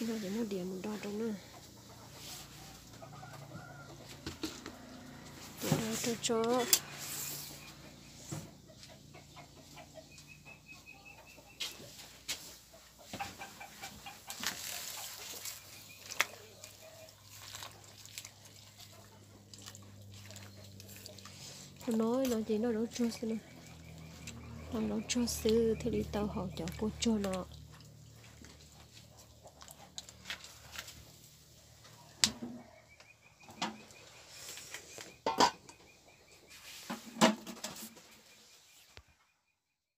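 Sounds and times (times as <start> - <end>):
ladle and pot lid clanking: 35.2 - 35.6.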